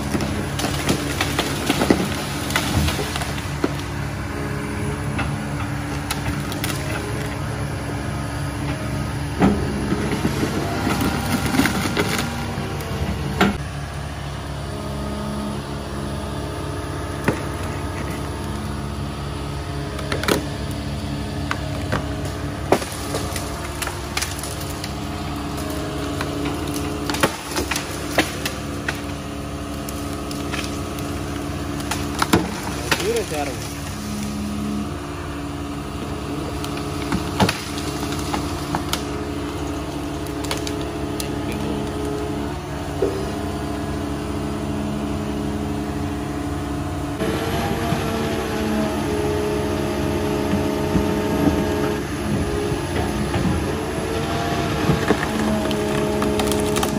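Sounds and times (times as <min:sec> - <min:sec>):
excavator diesel engine running: 0:00.0 - 0:56.9
wood snapping: 0:21.4 - 0:34.3, 0:36.6 - 0:42.2, 0:54.8 - 0:56.9.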